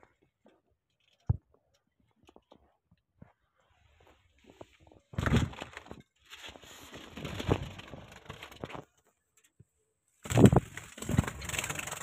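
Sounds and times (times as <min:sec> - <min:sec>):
dry grass crackling against microphone: 0:10.2 - 0:12.0.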